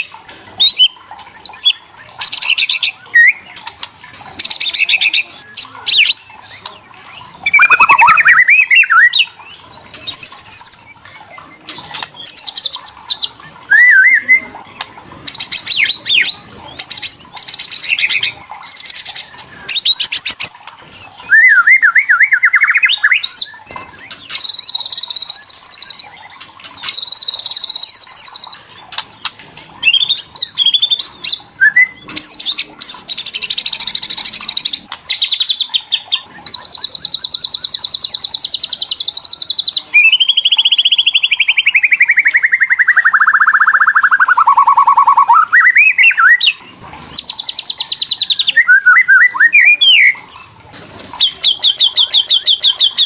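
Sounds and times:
swooping whistled notes: 0:07.4 - 0:09.2, 0:13.7 - 0:14.5, 0:21.3 - 0:23.3.

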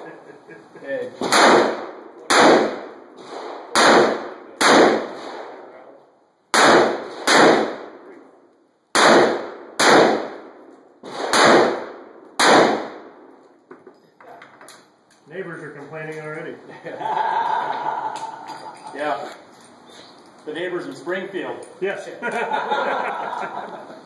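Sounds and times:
loud revolver shots with echo: 0:01.2 - 0:05.6, 0:06.5 - 0:08.0, 0:08.9 - 0:13.2.

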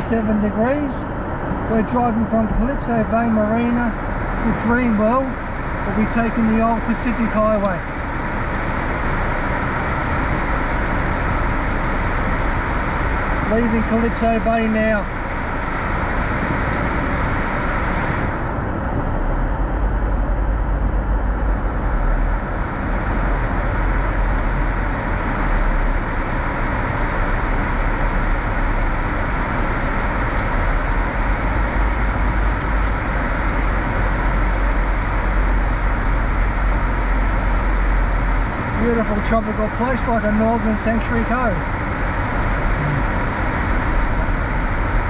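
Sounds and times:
car engine and road noise: 0:00.0 - 0:45.0
deep rumble: 0:00.0 - 0:45.0.

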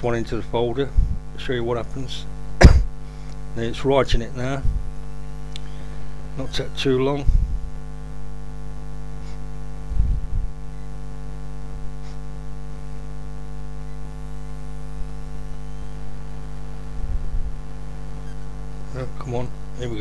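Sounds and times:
electrical mains hum: 0:00.0 - 0:20.0
low thump: 0:02.6 - 0:02.9.

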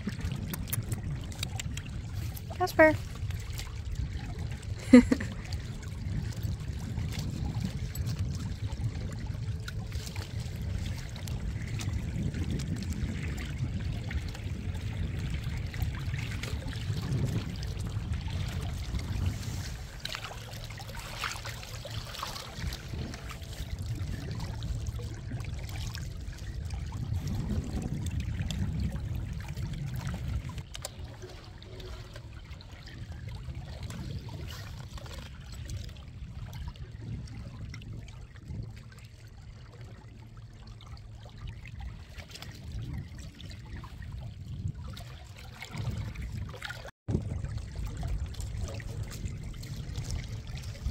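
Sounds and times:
steady low rumble: 0:00.0 - 0:45.4, 0:46.0 - 0:50.9
water splashing along boat hull: 0:00.0 - 0:50.9.

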